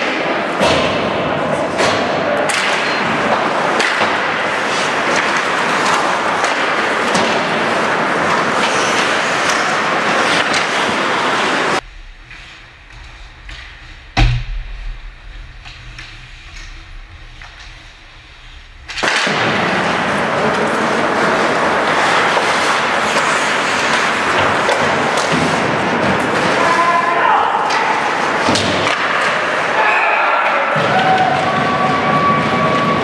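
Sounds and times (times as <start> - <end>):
hockey sticks and puck clacking: 0.0 - 14.4, 15.6 - 29.8, 30.4 - 33.0
skates scraping on ice: 3.0 - 14.0, 15.8 - 26.9
low hum: 11.7 - 20.6.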